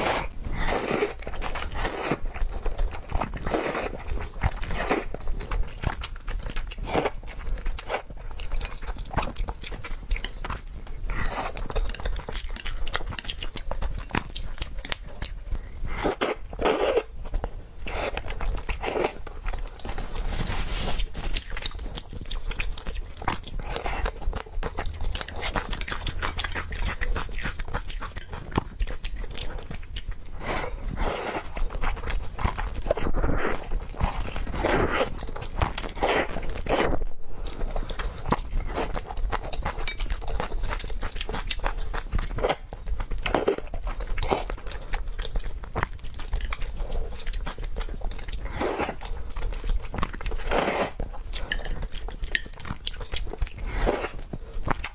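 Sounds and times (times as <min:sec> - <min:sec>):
slurping noodles: 0:00.0 - 0:02.3, 0:03.4 - 0:05.2, 0:30.3 - 0:39.2, 0:50.4 - 0:51.7
wet chewing: 0:00.0 - 0:54.9
rubbing against microphone: 0:20.0 - 0:21.4.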